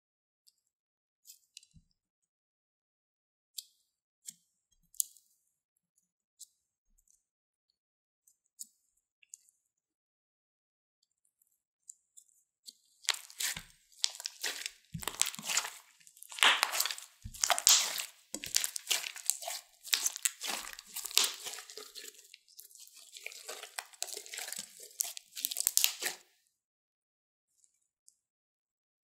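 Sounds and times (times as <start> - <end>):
slime squishing and crackling: 13.0 - 26.2.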